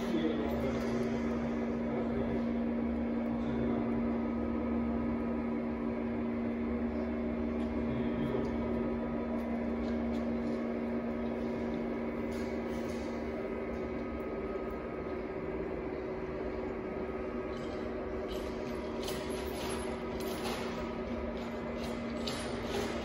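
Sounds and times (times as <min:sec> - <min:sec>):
machine drive humming: 0:00.0 - 0:23.0.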